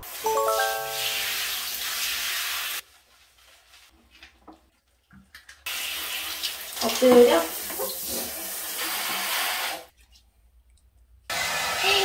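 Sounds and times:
shower water spraying: 0:00.0 - 0:02.8, 0:05.7 - 0:09.9, 0:11.3 - 0:12.0.

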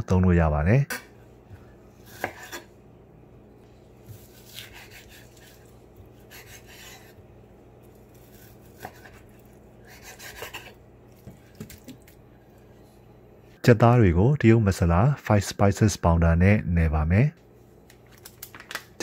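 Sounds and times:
knife scraping cutting board: 0:02.0 - 0:02.7, 0:04.0 - 0:07.2, 0:08.1 - 0:10.8.

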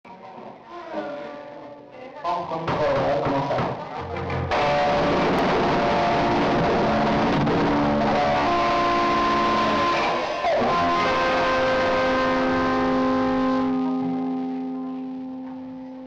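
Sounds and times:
electric guitar chords ringing: 0:03.4 - 0:16.0.

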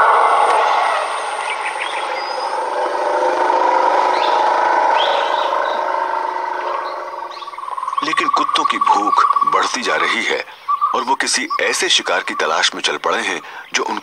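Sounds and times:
sustained layered chords: 0:00.0 - 0:08.4.

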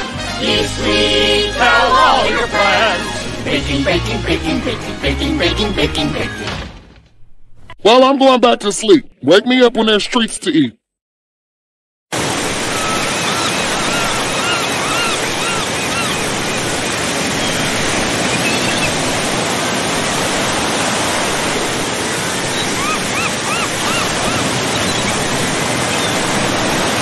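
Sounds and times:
rushing water: 0:12.2 - 0:27.0.

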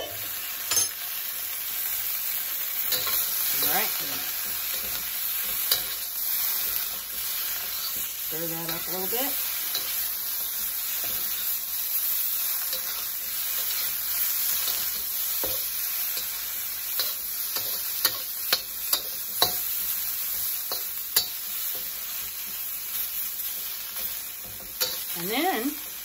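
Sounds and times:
tofu sizzling in oil: 0:00.0 - 0:26.0
metal spatula scraping wok: 0:02.8 - 0:22.0, 0:23.6 - 0:25.6.

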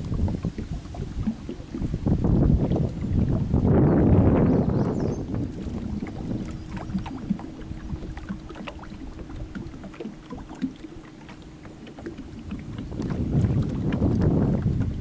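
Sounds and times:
waves lapping against boat hull: 0:00.0 - 0:15.0
wind rumble on microphone: 0:00.0 - 0:15.0.

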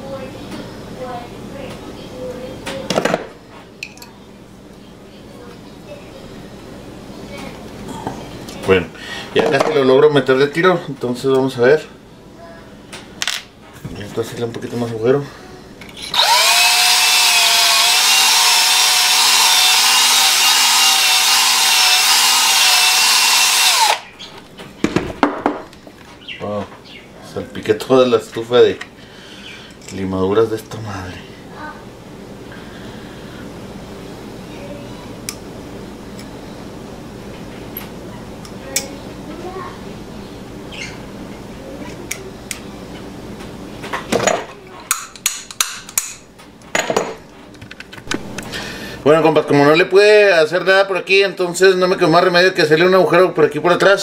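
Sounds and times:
electric drill whining: 0:16.1 - 0:24.1.

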